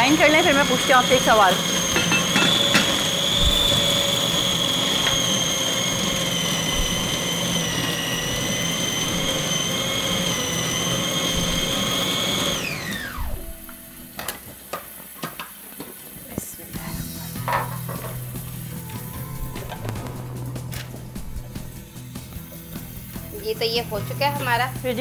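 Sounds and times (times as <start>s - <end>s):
food chopper motor whine: 0.0s - 14.4s, 17.8s - 23.1s.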